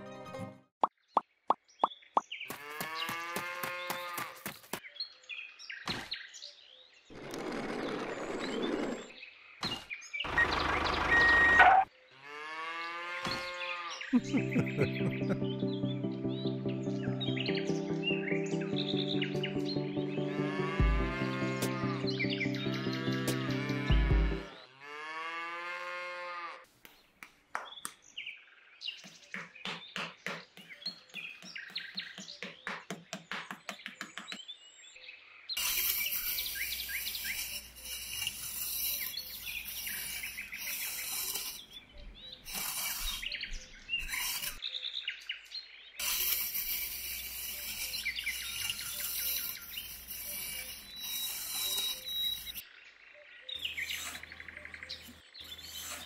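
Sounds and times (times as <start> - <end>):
birds chirping: 0.9 - 24.7, 26.9 - 56.0
cow mooing: 12.2 - 14.0, 23.4 - 26.6.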